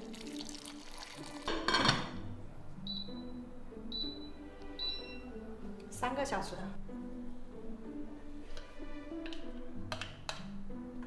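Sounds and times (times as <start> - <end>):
boiling water pouring from kettle: 0.0 - 1.7
background music: 0.0 - 11.0.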